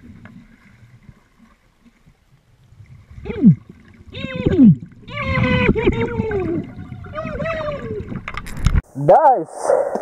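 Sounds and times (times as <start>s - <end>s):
underwater river rumble: 0.0s - 8.8s.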